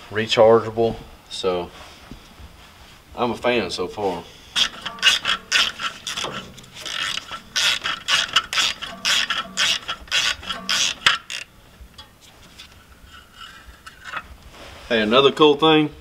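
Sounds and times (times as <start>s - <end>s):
ratchet wrench clicking: 4.6s - 12.1s.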